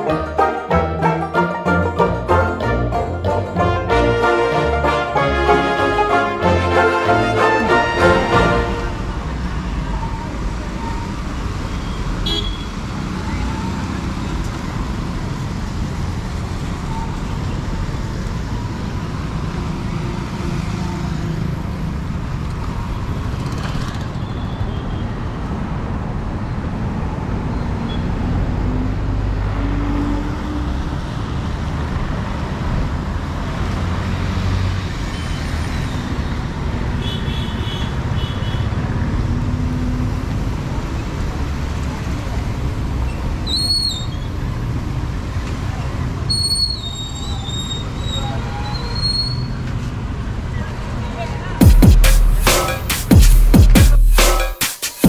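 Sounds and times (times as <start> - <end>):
scooters and motorbikes passing: 12.8 - 25.8.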